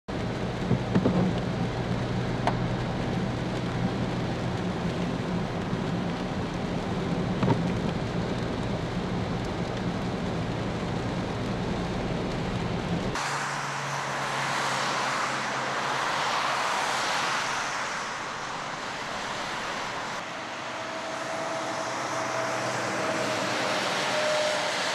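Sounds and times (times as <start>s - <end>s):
car engine hum: 0.1s - 24.9s
rain and tyres on wet road: 0.1s - 24.9s
taps on windshield: 0.6s - 1.4s.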